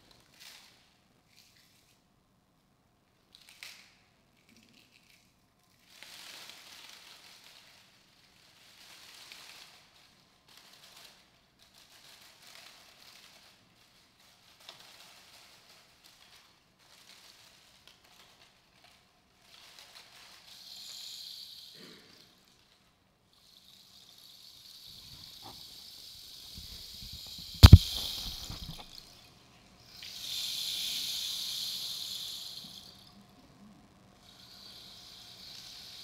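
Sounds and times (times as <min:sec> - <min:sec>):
rainstick hissing patter: 0:20.4 - 0:21.8, 0:23.3 - 0:29.0, 0:29.8 - 0:33.1, 0:34.2 - 0:36.0
sharp loud knock: 0:27.3 - 0:28.8.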